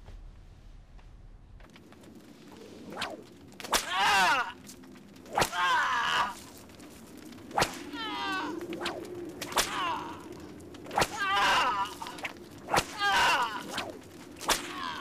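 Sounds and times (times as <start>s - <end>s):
whip cracking: 2.9s - 4.3s, 5.3s - 5.7s, 7.5s - 8.0s, 8.7s - 10.0s, 10.8s - 15.0s.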